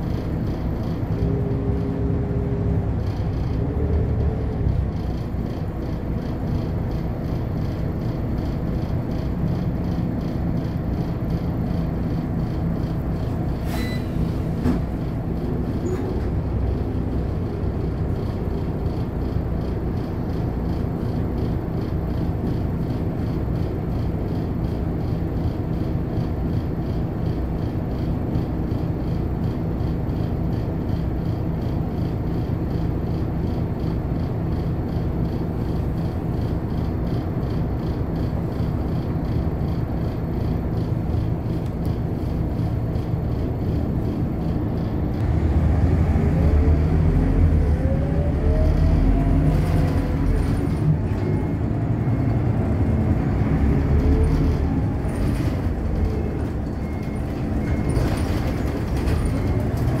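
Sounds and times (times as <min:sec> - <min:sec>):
bus engine and road noise: 0:00.0 - 1:00.0
rising engine whine: 0:40.7 - 1:00.0.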